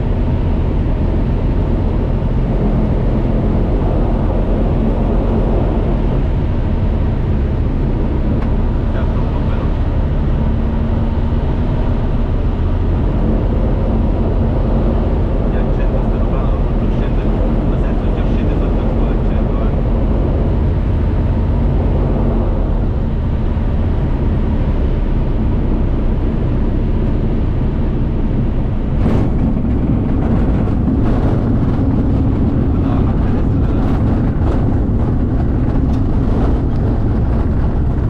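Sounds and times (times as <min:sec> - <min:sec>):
propeller aircraft engine: 0:00.0 - 0:38.0
wheels knocking and rattling: 0:28.4 - 0:38.0.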